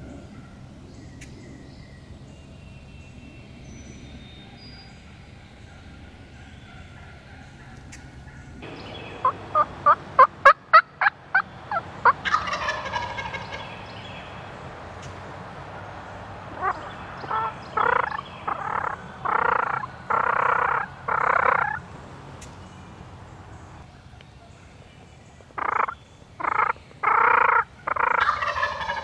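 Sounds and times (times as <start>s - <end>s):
turkey gobbling: 6.6s - 13.9s, 16.5s - 21.8s, 25.6s - 29.0s.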